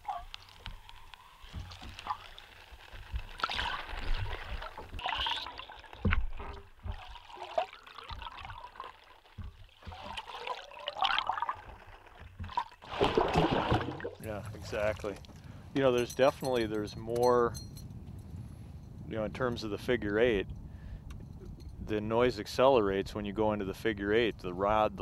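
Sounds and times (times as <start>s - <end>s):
underwater gurgling and swishing: 0.0s - 15.4s
low underwater thumps: 6.0s - 7.3s, 9.3s - 10.4s.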